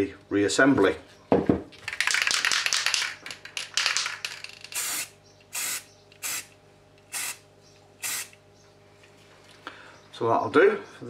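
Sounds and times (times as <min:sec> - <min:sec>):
spray paint can hissing: 0:03.8 - 0:06.5, 0:07.1 - 0:07.4, 0:08.0 - 0:08.4.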